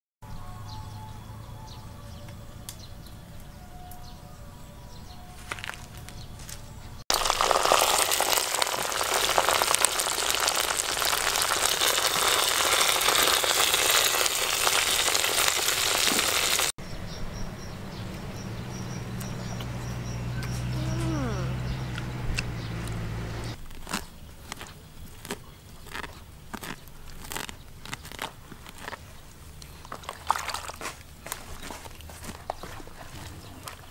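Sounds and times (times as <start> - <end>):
meat sizzling in a pot: 7.1 - 16.7.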